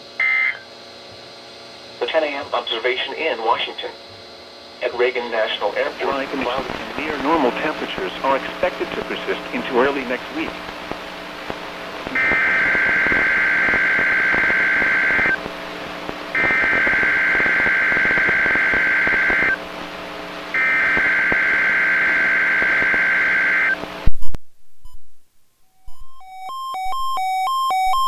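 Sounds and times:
warbling two-tone data bursts: 12.1s - 15.4s.

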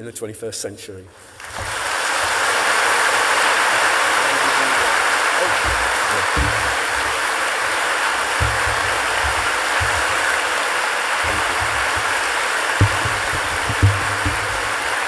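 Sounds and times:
audience applauding: 1.4s - 15.0s
low thumps: 5.4s - 15.0s.

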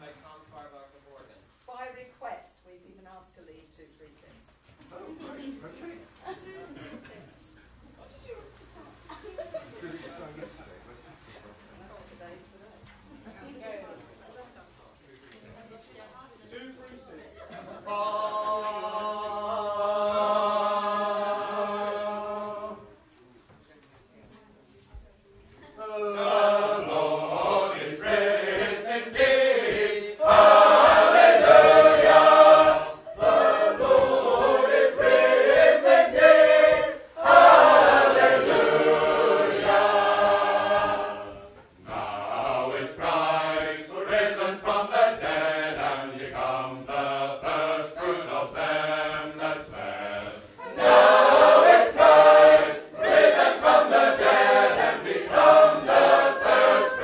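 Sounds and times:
group singing a cappella hymn: 17.6s - 23.0s, 25.8s - 57.0s.

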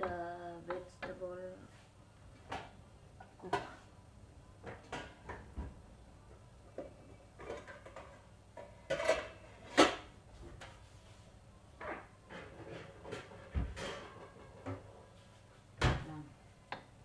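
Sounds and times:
kitchenware clattering: 7.4s - 10.1s, 11.8s - 14.9s.

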